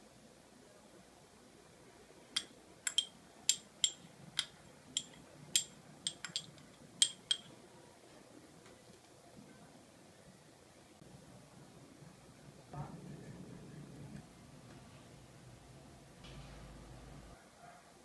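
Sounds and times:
spoon clinking against clay pot: 2.4s - 7.5s.

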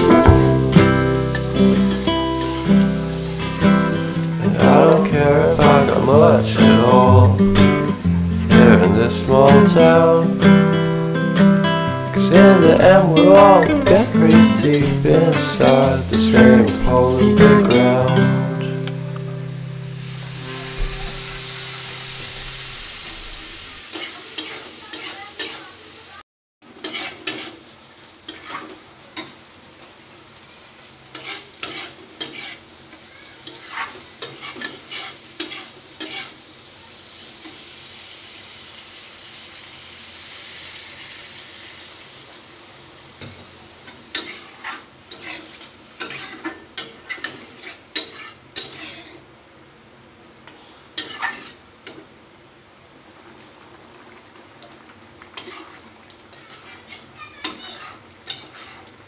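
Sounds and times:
water hissing in hot pan: 0.0s - 8.5s, 12.5s - 26.2s, 26.8s - 48.8s
food frying and sizzling: 0.0s - 59.0s
metal spatula scraping pan: 31.1s - 32.6s, 44.2s - 49.2s, 51.0s - 51.6s, 55.4s - 58.9s.

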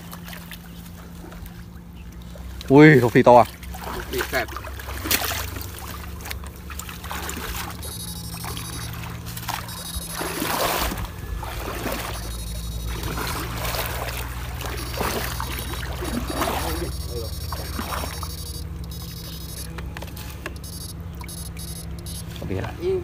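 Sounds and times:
low electrical hum: 0.0s - 23.0s
wading through shallow water: 0.0s - 23.0s
high whine: 7.8s - 9.0s, 9.6s - 10.6s, 11.9s - 22.4s.

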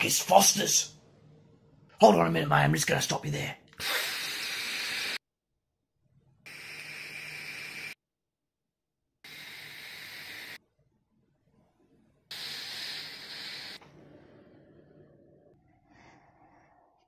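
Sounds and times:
breath blowing out vapour: 3.8s - 5.2s, 6.5s - 8.0s, 9.3s - 10.6s, 12.3s - 14.1s
vape hissing pulls: 3.8s - 5.2s, 6.5s - 8.0s, 9.3s - 10.6s, 12.3s - 13.8s.

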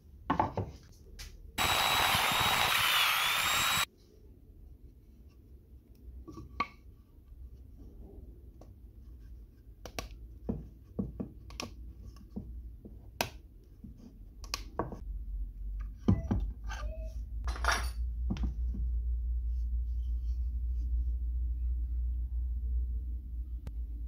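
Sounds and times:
low hum: 18.0s - 24.0s.

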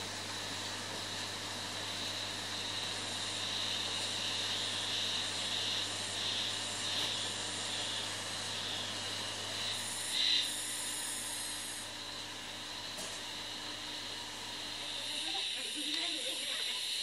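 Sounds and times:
insects trilling: 0.2s - 17.0s
even hiss: 1.8s - 12.3s, 14.5s - 17.0s.

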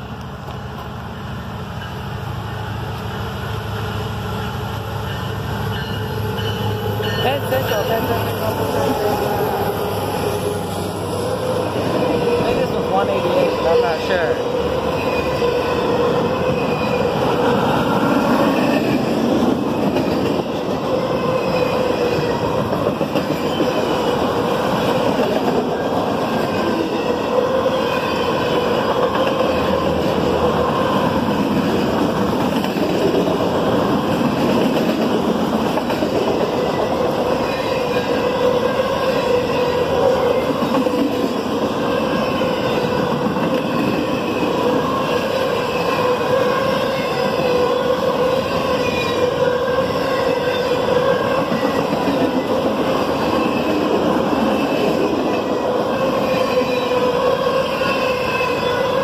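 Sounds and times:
freight train wheels rumbling: 0.0s - 59.0s
wavering ringing from wheels: 4.3s - 8.6s.

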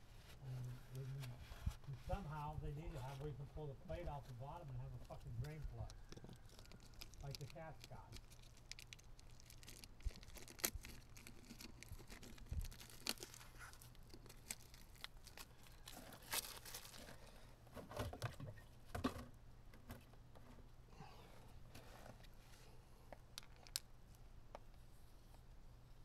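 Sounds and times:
hands rustling gloves and packaging: 0.0s - 18.9s.

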